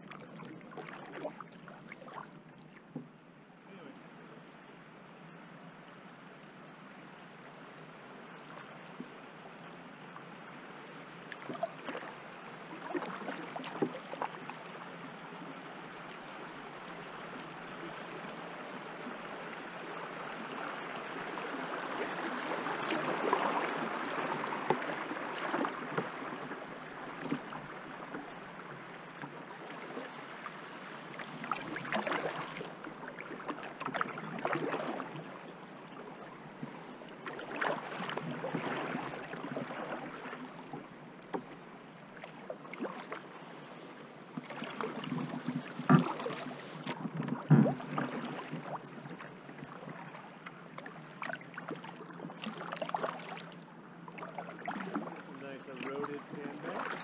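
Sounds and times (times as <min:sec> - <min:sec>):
paddle splashes: 0:00.0 - 0:03.1, 0:11.2 - 0:57.0
river water rushing: 0:16.4 - 0:36.2, 0:54.2 - 0:57.0.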